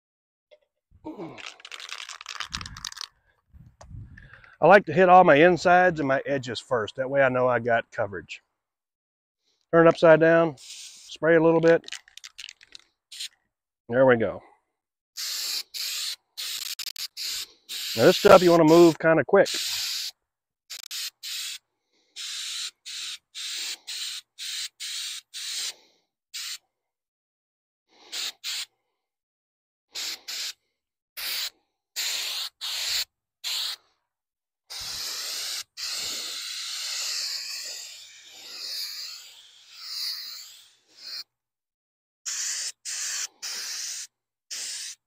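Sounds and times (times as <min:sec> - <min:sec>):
aerosol spray can hissing: 0:01.4 - 0:03.1, 0:10.6 - 0:11.1, 0:11.8 - 0:13.3, 0:15.2 - 0:18.9, 0:19.5 - 0:21.6, 0:22.2 - 0:25.7, 0:26.4 - 0:26.6, 0:28.1 - 0:28.7, 0:30.0 - 0:30.6, 0:31.2 - 0:33.8, 0:34.7 - 0:41.3, 0:42.3 - 0:45.0.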